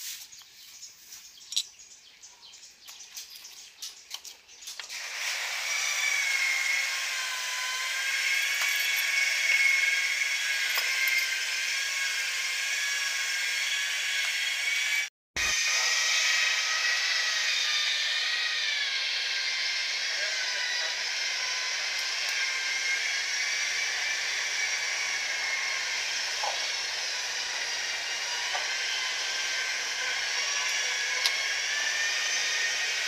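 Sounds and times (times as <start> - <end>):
screwdriver scraping metal: 1.4 - 1.8, 7.7 - 11.6, 29.9 - 33.0.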